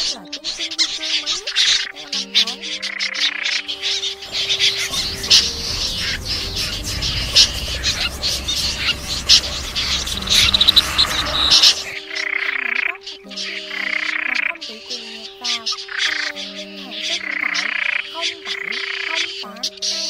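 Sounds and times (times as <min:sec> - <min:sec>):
snipe calling: 0:00.0 - 0:20.0
low rumble: 0:04.2 - 0:12.0.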